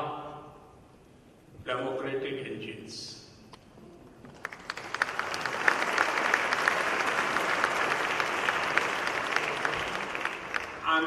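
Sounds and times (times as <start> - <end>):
large audience applauding: 4.3 - 11.0.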